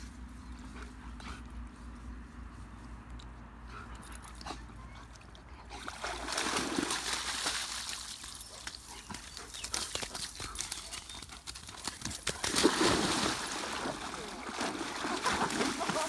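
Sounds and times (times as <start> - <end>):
dog splashing in water: 5.8 - 16.0.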